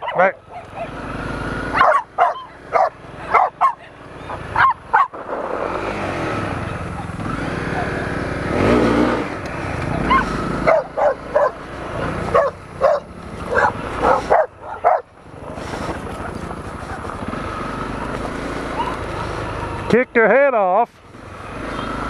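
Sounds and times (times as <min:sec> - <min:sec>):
dogs barking: 0:00.0 - 0:05.3, 0:10.0 - 0:17.3, 0:18.6 - 0:19.3
motorcycle engine running: 0:00.0 - 0:22.0.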